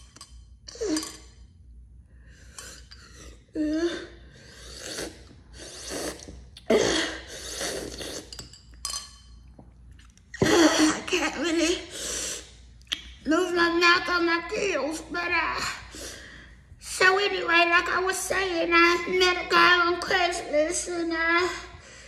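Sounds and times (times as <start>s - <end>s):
slurping through a straw: 4.6s - 6.4s, 7.4s - 8.4s.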